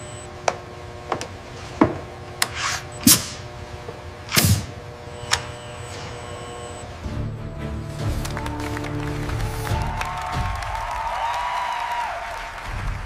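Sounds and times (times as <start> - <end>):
faint steady hum: 0.0 - 7.1
robotic arm clicks and clunks: 4.3 - 6.2.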